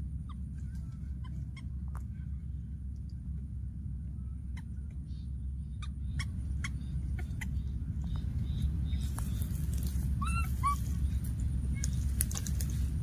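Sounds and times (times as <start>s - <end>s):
steady low rumble: 0.0s - 13.0s
baby monkey squeaky calls: 0.1s - 1.8s, 4.5s - 12.2s
sharp clicks and crackles: 11.8s - 12.9s.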